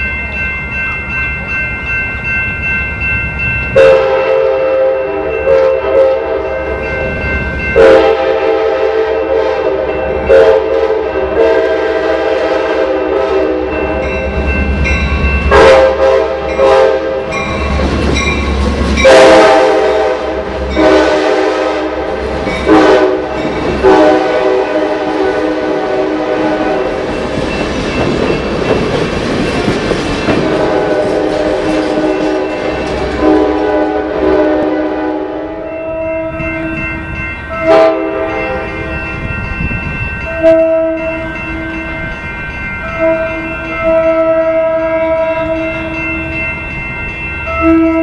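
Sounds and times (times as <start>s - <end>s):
low rumble of passing train: 0.0s - 48.0s
train horn blasts: 3.8s - 6.8s, 7.8s - 14.2s, 15.5s - 17.4s, 19.0s - 27.1s, 30.5s - 36.8s, 37.6s - 38.9s, 40.3s - 41.8s, 43.0s - 46.0s, 47.6s - 48.0s.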